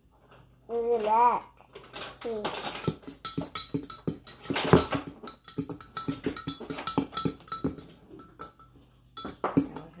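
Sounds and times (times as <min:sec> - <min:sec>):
fork clinking against glass cup: 0:02.8 - 0:10.0.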